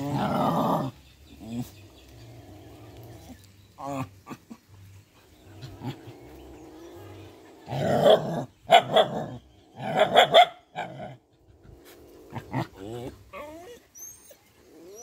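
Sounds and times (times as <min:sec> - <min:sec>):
dogs barking: 0:07.8 - 0:11.2.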